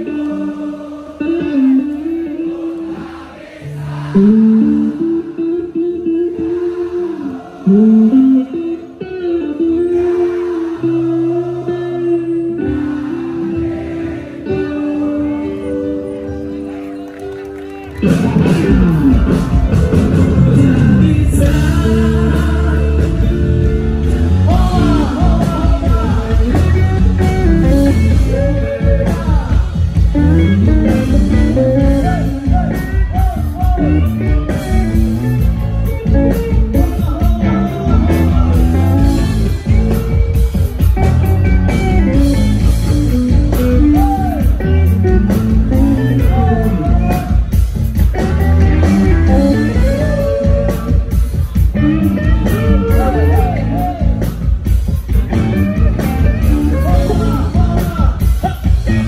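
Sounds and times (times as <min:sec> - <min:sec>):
electric guitars: 0:00.0 - 0:59.0
bass guitar: 0:03.6 - 0:59.0
person singing: 0:03.8 - 0:42.6, 0:43.7 - 0:54.4, 0:55.3 - 0:59.0
drums: 0:12.6 - 0:59.0.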